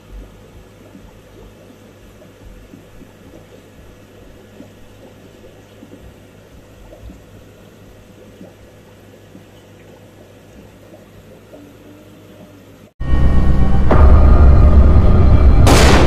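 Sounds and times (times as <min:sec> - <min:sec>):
aquarium filter bubbling: 0:00.0 - 0:12.9
low electrical hum: 0:00.0 - 0:16.0.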